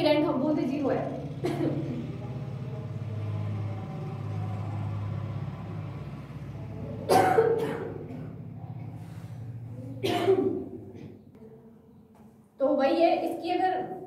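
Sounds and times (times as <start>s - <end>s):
steady low hum: 0.0s - 13.2s
woman coughing: 1.4s - 2.0s, 7.0s - 8.4s, 10.0s - 11.2s.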